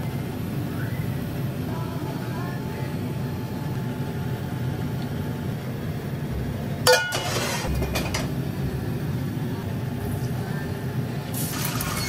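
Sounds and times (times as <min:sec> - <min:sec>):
steady low rumble: 0:00.0 - 0:11.5
ladle scraping in pan: 0:06.9 - 0:08.3
metal ladle clanging on wok: 0:06.9 - 0:08.3.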